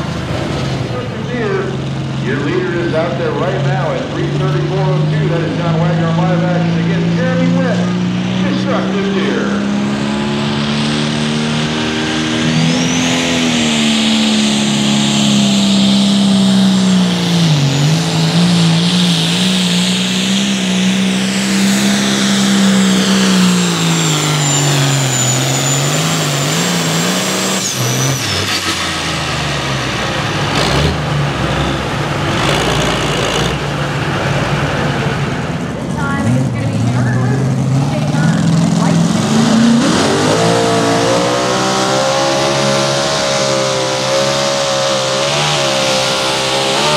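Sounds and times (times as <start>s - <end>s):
tractor diesel engine at full power: 0.0s - 46.9s
high turbo whistle: 21.8s - 28.7s.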